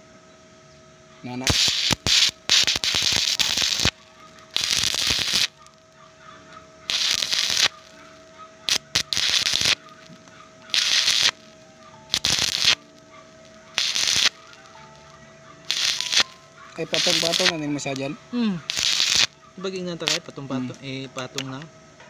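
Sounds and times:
welding arc crackling: 0:01.2 - 0:21.5.

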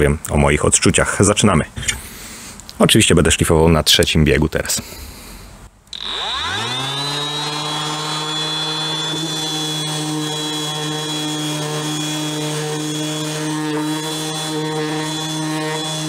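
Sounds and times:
orbital sander motor hum: 0:05.9 - 0:16.0.

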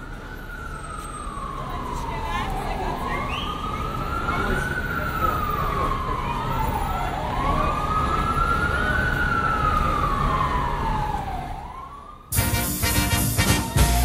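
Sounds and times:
siren wailing: 0:00.0 - 0:14.0
swing band with brass: 0:12.3 - 0:14.0.

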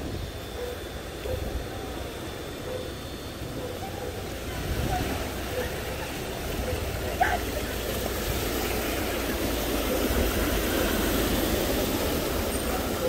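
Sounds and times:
tyres churning water: 0:03.4 - 0:13.0
floodwater rushing: 0:04.1 - 0:13.0.

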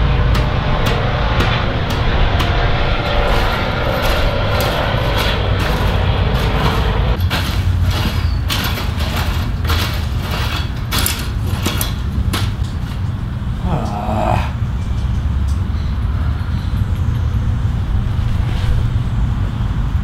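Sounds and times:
low engine-like rumble: 0:00.0 - 0:08.2
rake scraping through soil: 0:03.0 - 0:12.0.

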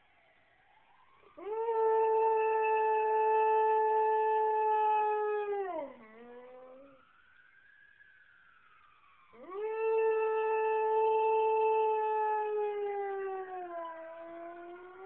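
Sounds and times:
faint siren rising and falling: 0:00.1 - 0:15.0
dog howling: 0:01.4 - 0:07.0, 0:09.4 - 0:15.0.

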